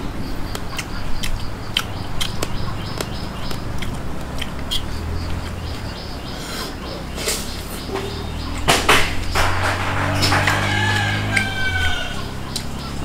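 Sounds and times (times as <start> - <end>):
man chewing food: 0.0 - 8.7, 12.2 - 13.0.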